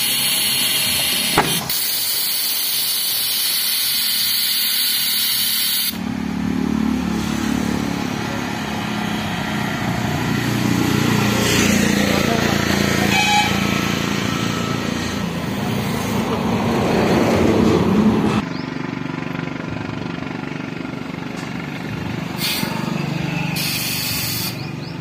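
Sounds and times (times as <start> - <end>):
compressed air hissing: 0.0 - 6.0, 22.3 - 24.9
steady mechanical hum: 0.0 - 17.1, 17.9 - 25.0.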